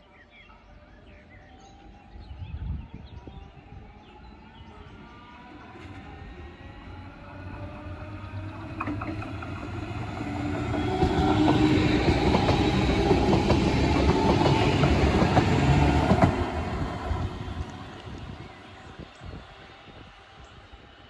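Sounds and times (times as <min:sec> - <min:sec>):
electric train passing: 0:00.5 - 0:21.0
wheels clicking over rail joints: 0:08.4 - 0:16.6.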